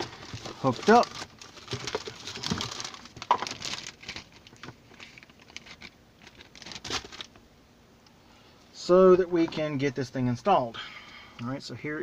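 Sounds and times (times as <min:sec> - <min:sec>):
cables handling noises: 0:00.0 - 0:07.4.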